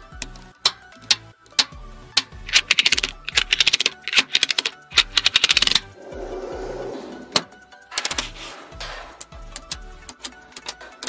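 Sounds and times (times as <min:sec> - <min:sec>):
magnetic balls clicking: 0:00.0 - 0:06.0, 0:09.2 - 0:11.0
background music: 0:00.0 - 0:11.0
soft scraping: 0:06.0 - 0:07.6.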